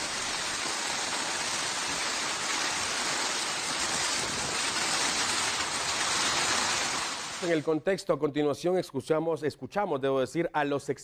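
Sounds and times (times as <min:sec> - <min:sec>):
heavy rain rushing: 0:00.0 - 0:07.7.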